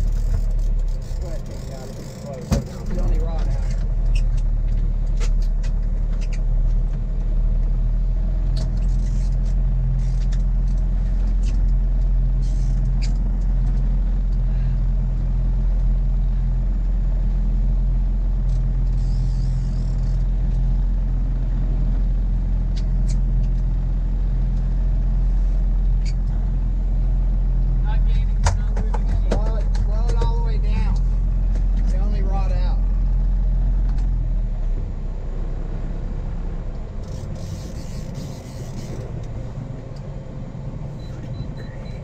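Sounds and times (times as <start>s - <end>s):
boat engine droning: 0.0s - 15.0s, 26.6s - 42.0s.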